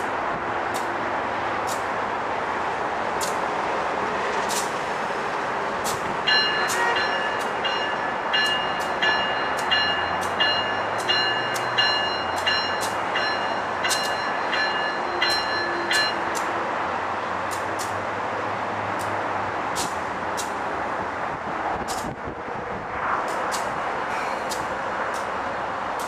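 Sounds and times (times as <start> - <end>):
train rumbling: 0.0 - 26.0
train bell ringing: 6.2 - 16.4.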